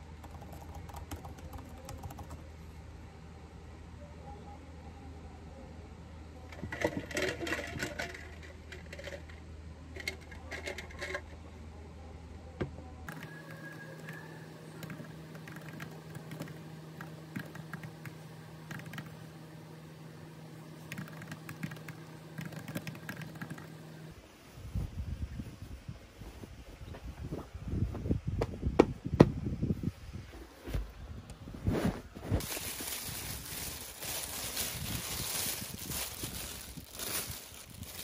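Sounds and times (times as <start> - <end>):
low steady hum: 0.0 - 38.0
typing on computer keyboard: 0.2 - 2.4, 14.8 - 16.6, 17.3 - 19.1, 20.9 - 23.7.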